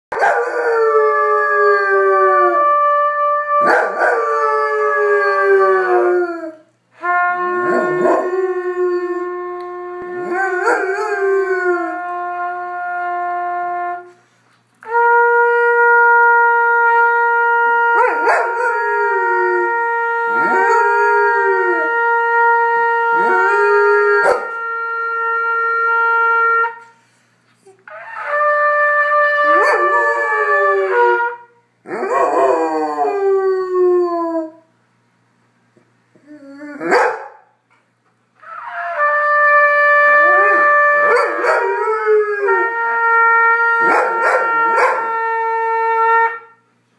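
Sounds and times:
trumpet long notes: 0.1s - 27.2s, 27.8s - 34.5s, 38.4s - 46.8s
dog howling: 7.2s - 12.5s, 17.8s - 22.0s, 40.0s - 46.4s.

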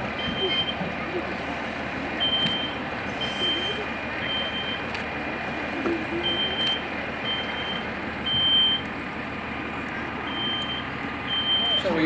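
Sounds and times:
steady background noise: 0.0s - 12.0s
smoke alarm beeping: 6.2s - 8.8s, 10.3s - 11.9s.

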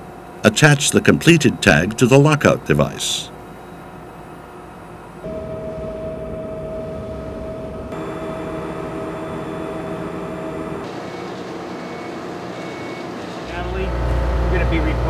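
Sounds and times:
engine room machinery drone: 0.0s - 15.0s
steady tone: 5.2s - 11.3s.

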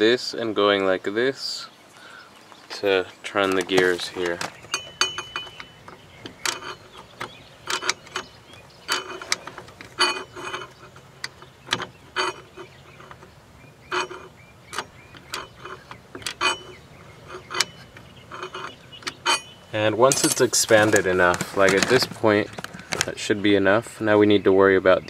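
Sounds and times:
metallic clicks and scrapes: 3.3s - 23.2s.

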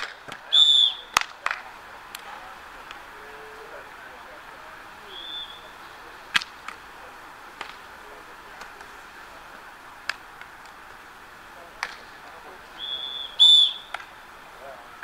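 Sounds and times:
murmur of voices: 0.0s - 15.0s
referee's whistle: 0.5s - 1.2s, 5.1s - 5.8s, 12.8s - 14.0s
hands slapping volleyball: 1.1s - 2.3s, 6.3s - 6.9s, 7.5s - 7.9s, 10.0s - 11.0s, 11.7s - 12.4s.

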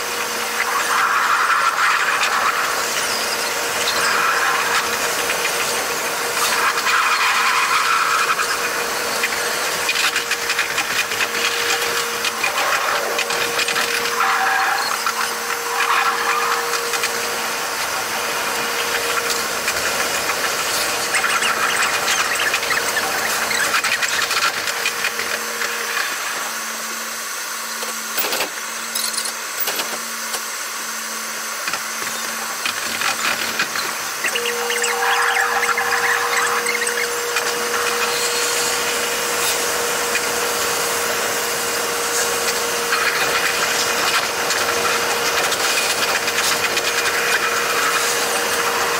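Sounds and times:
high squealing train whir: 0.0s - 26.4s, 32.0s - 48.9s
steady hum: 33.8s - 48.9s.

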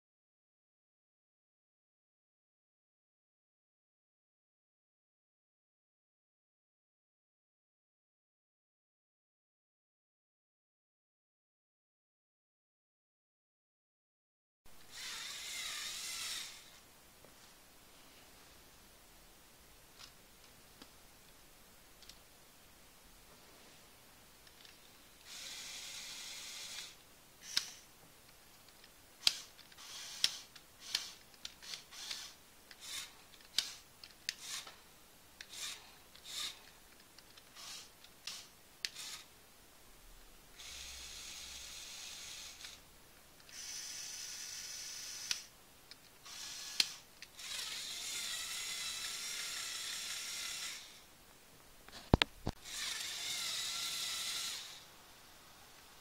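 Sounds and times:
sharp clicks and short whirs: 14.8s - 16.7s, 24.4s - 27.9s, 28.6s - 34.8s, 35.4s - 39.3s, 40.6s - 51.1s, 51.9s - 54.9s
electric motors whirring: 14.9s - 16.7s, 25.2s - 27.8s, 29.2s - 34.8s, 35.4s - 36.7s, 37.5s - 39.3s, 40.6s - 42.8s, 43.5s - 45.5s, 46.2s - 51.1s, 52.6s - 54.9s.

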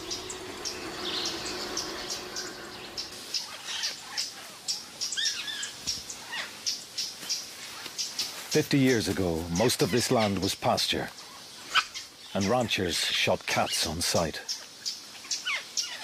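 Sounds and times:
faint low hum: 0.0s - 3.2s
bird chirps: 0.0s - 8.3s
high chirping calls: 0.0s - 8.3s.

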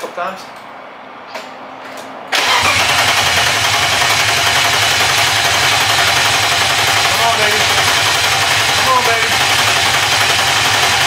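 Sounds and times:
engine cranking on starter: 2.3s - 11.0s.

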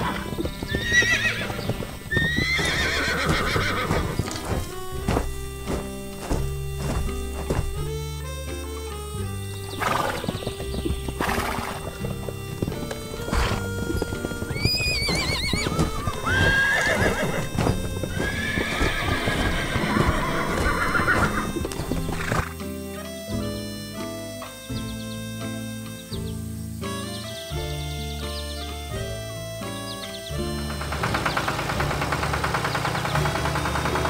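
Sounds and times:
horse whinnying: 0.0s - 5.6s, 9.4s - 22.6s
horse neighing: 0.0s - 6.6s, 9.2s - 23.2s
background music: 0.0s - 34.0s
horse hooves clip-clopping: 0.0s - 34.0s.

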